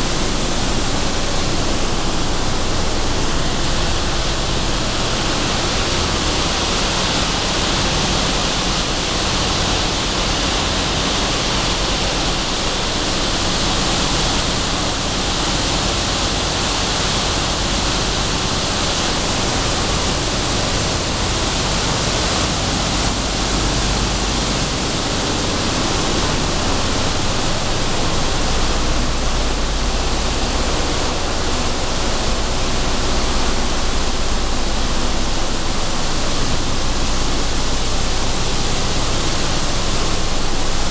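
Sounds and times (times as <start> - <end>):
low rumble: 22.6 - 40.8.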